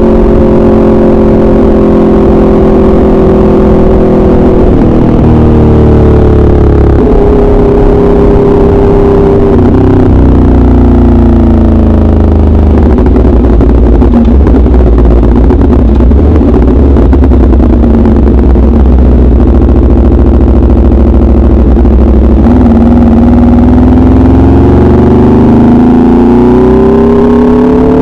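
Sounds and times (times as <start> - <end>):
loud motorcycle engine revving: 0.0 - 28.0.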